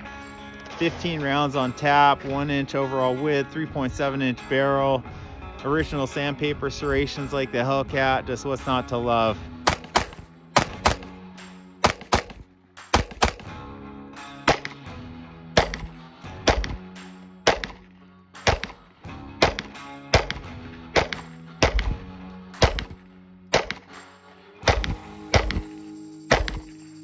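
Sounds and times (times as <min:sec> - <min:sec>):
background music: 0:00.0 - 0:27.0
pistol shots: 0:09.6 - 0:11.2, 0:11.8 - 0:13.6, 0:14.4 - 0:14.9, 0:15.6 - 0:18.8, 0:19.4 - 0:24.0, 0:24.6 - 0:25.7, 0:26.3 - 0:26.7.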